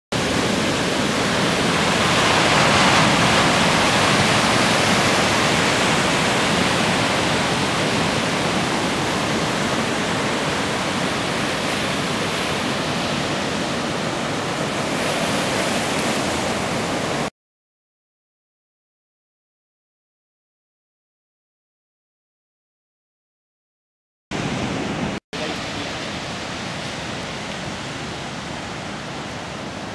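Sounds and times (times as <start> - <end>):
ocean waves breaking: 0.1 - 17.3, 24.4 - 29.9.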